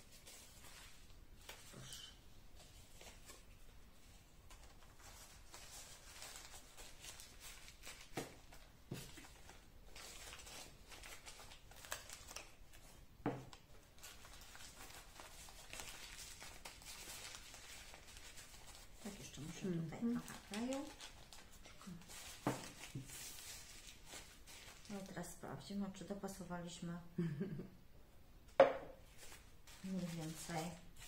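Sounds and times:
paper rustling and crinkling: 0:00.0 - 0:25.4, 0:29.1 - 0:31.0.

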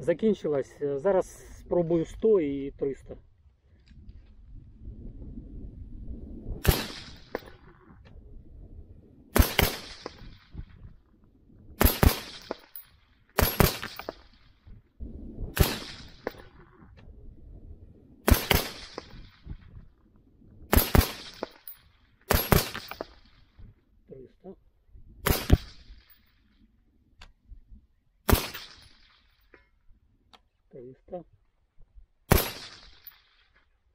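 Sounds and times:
suppressed rifle shots: 0:06.6 - 0:07.8, 0:09.3 - 0:10.7, 0:11.8 - 0:12.8, 0:13.4 - 0:14.6, 0:15.5 - 0:16.7, 0:18.2 - 0:19.6, 0:20.7 - 0:23.5, 0:25.2 - 0:26.2, 0:28.2 - 0:29.4, 0:32.3 - 0:33.6.

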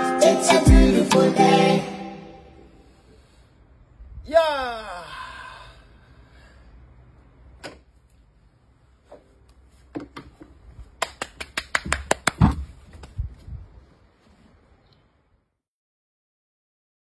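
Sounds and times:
knocks on wooden deck: 0:12.3 - 0:12.7.

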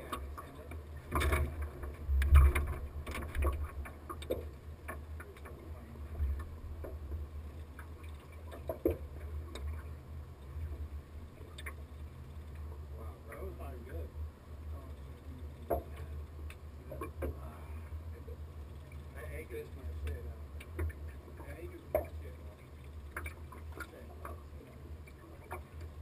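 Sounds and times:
knocks and clicks on hull: 0:00.0 - 0:09.9, 0:15.6 - 0:17.4, 0:20.0 - 0:21.1, 0:21.8 - 0:24.4
boat engine rumble: 0:00.0 - 0:26.0.

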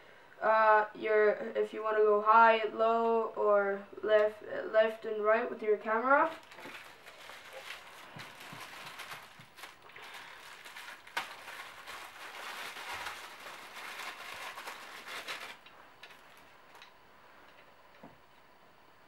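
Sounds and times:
plastic bag crinkling: 0:06.2 - 0:16.9.

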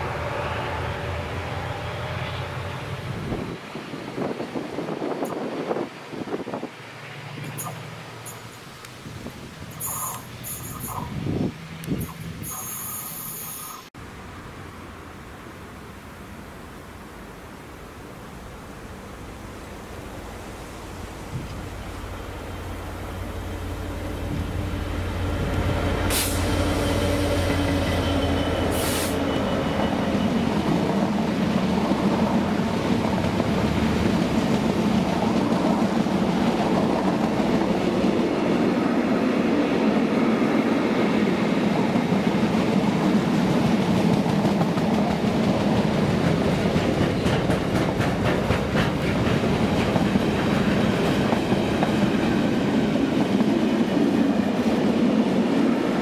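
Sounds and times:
diesel locomotive engine hum: 0:00.0 - 0:56.0
short bursts of hiss: 0:09.7 - 0:11.2, 0:12.0 - 0:13.9, 0:26.1 - 0:27.2, 0:28.7 - 0:29.2.

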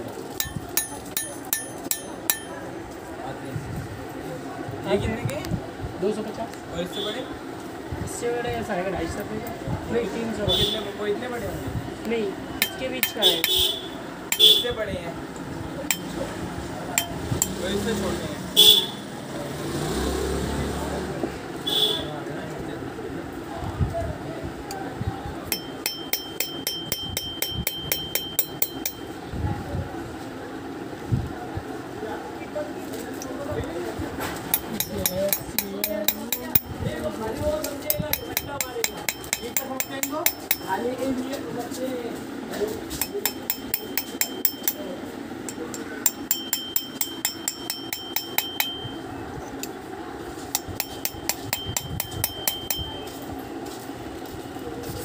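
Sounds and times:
hammer tapping metal punch: 0:00.4 - 0:02.6, 0:12.6 - 0:14.7, 0:15.9 - 0:16.2, 0:17.0 - 0:17.6, 0:25.5 - 0:29.2, 0:34.5 - 0:36.8, 0:37.6 - 0:40.8, 0:43.0 - 0:49.0, 0:50.5 - 0:53.2
high ringing of brass: 0:12.6 - 0:14.8, 0:43.0 - 0:49.1
faint high metallic ring: 0:25.5 - 0:29.3, 0:43.0 - 0:49.1, 0:50.6 - 0:53.3.

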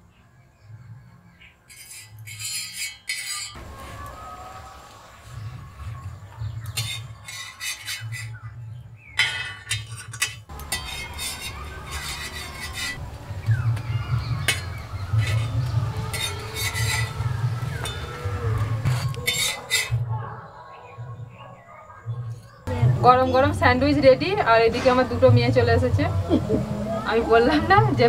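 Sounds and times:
metal spatulas scraping a griddle: 0:01.7 - 0:04.0, 0:05.9 - 0:08.6, 0:09.2 - 0:20.0.

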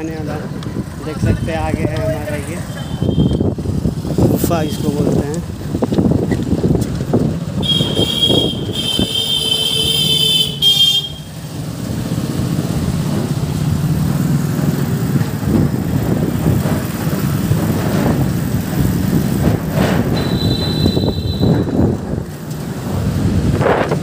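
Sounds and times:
road traffic rumble: 0:00.0 - 0:24.0
wind on microphone: 0:03.1 - 0:09.2, 0:15.1 - 0:24.0
vehicle horn: 0:07.6 - 0:11.4, 0:20.2 - 0:21.7.

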